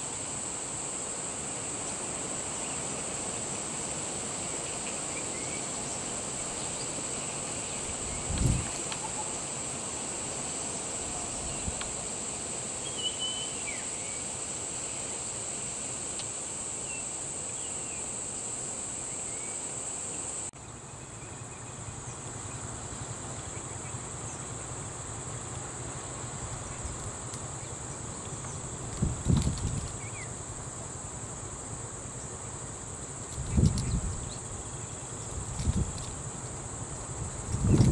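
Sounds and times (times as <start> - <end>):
insects droning: 0.0 - 37.9
bird chirps: 12.8 - 13.9.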